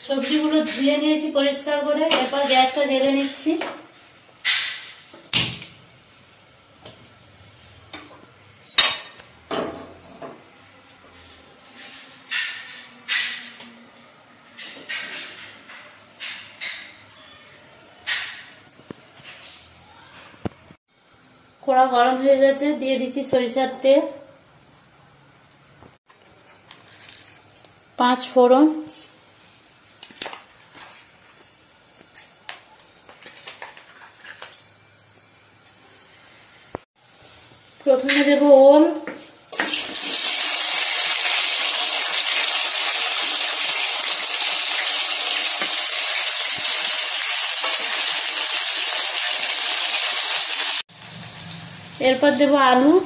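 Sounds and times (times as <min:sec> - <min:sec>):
seeds crackling in hot oil: 0:28.9 - 0:53.0.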